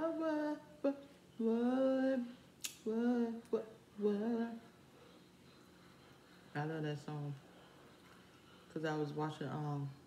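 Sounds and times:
woman singing: 0.0 - 4.8.

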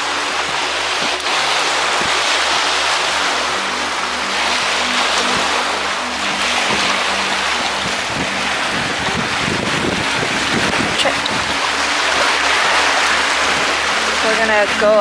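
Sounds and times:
small waves lapping: 0.0 - 15.0
wind on microphone: 0.0 - 15.0.

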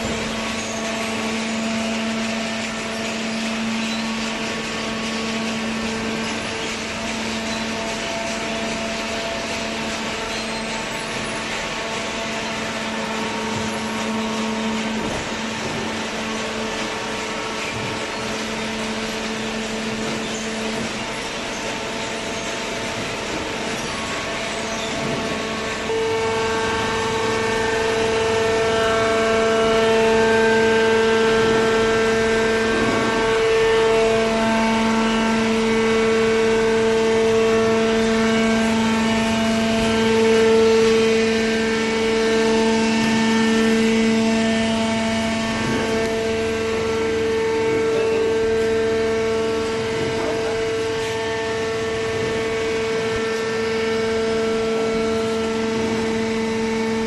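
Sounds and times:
hydraulic power unit whining: 0.0 - 57.0.

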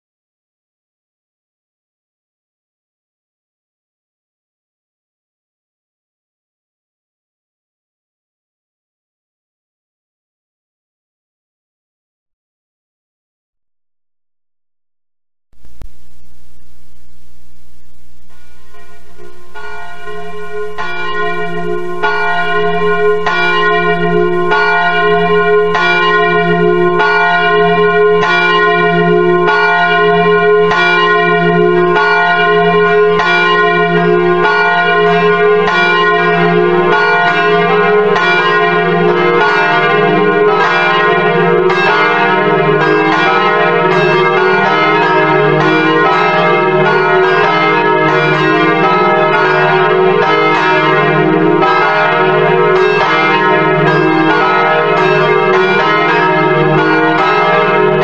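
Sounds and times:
church bells ringing: 15.6 - 58.0.

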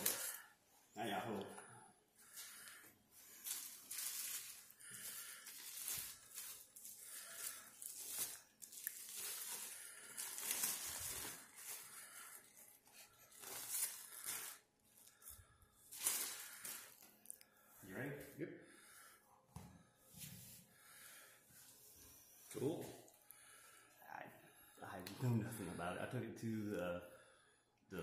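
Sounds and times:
bubble wrap crinkling: 0.0 - 0.4, 2.2 - 17.4.

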